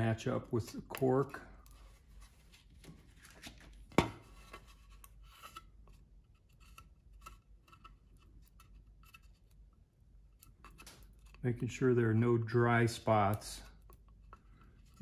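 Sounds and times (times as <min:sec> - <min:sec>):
stir stick scraping on wood: 0:00.0 - 0:02.7, 0:04.2 - 0:09.7, 0:12.8 - 0:15.0.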